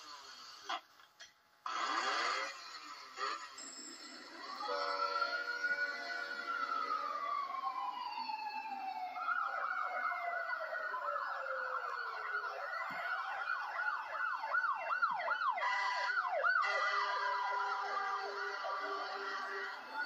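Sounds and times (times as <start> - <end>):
siren yelping: 4.4 - 20.0.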